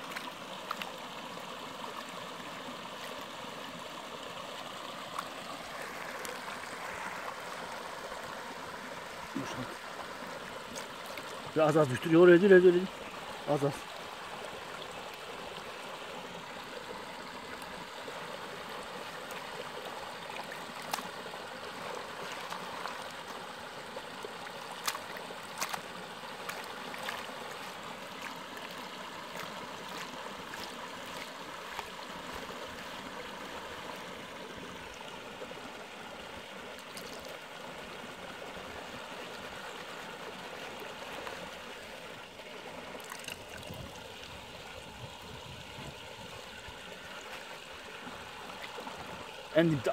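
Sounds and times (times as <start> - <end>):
creek water trickling: 0.0 - 49.9.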